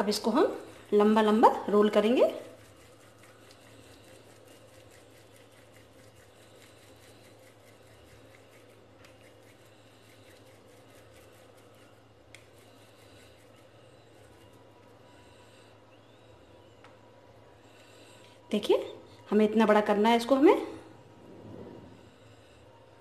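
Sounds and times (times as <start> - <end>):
hands rolling dough: 0.0 - 15.7
low room hum: 0.0 - 23.0.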